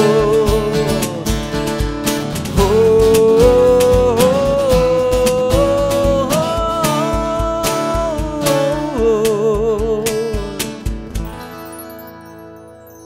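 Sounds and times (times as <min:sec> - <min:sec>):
man singing with vibrato: 0:00.0 - 0:01.8, 0:02.5 - 0:10.8
cajon beat: 0:00.0 - 0:11.6
strummed acoustic guitars: 0:00.0 - 0:12.9.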